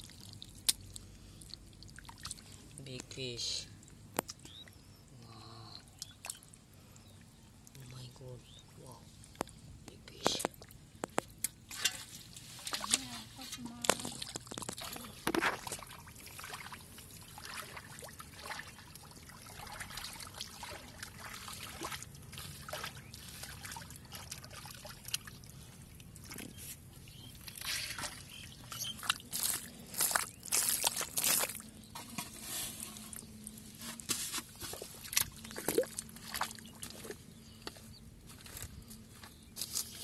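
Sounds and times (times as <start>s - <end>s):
water sloshing and trickling: 0.0s - 9.6s, 10.2s - 40.0s
hands squelching in wet mud: 11.4s - 31.7s, 34.0s - 37.3s
sharp water splashes: 14.0s - 25.5s.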